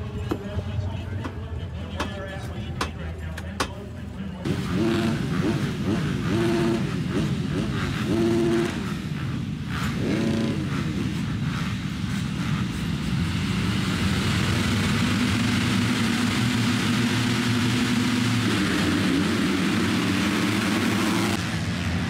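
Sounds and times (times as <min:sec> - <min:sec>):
motocross bikes revving: 0:00.0 - 0:22.0
motorbikes accelerating away: 0:04.4 - 0:22.0.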